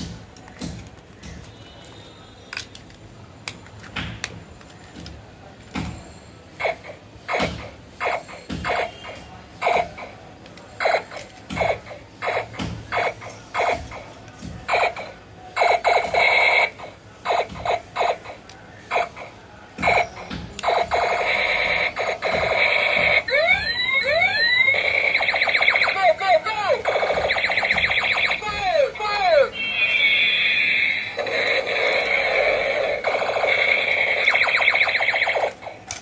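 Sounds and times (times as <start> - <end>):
toy machine gun electronic bursts: 6.6 - 10.2, 10.8 - 14.0, 14.7 - 35.8.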